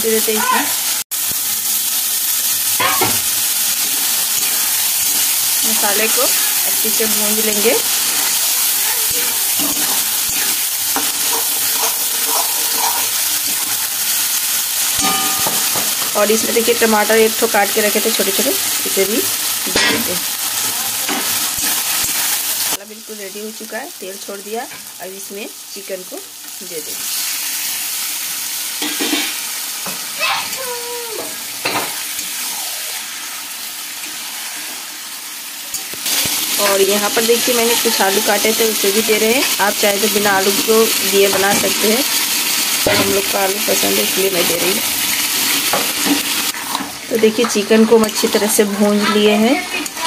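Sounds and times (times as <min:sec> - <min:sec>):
spices sizzling in oil: 0:00.0 - 0:50.0
spatula scraping a pan: 0:07.5 - 0:13.9, 0:48.1 - 0:49.8
metal spoon knocking against pan: 0:15.0 - 0:16.1.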